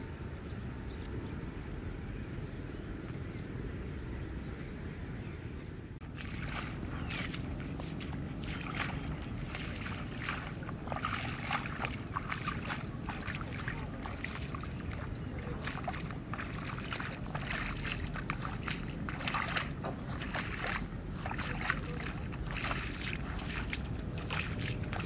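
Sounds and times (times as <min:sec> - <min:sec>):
low wind rumble on microphone: 0:00.0 - 0:25.0
bare feet splashing through wet grass: 0:06.0 - 0:25.0.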